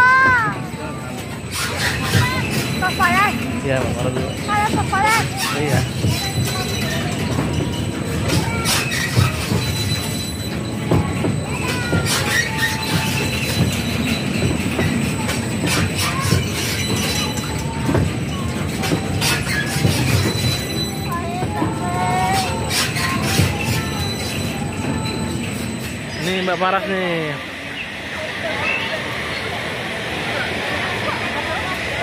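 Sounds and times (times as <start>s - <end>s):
ride wheels rumbling on rail: 0.0s - 32.0s
short high squeaks: 1.4s - 3.5s, 4.1s - 26.7s.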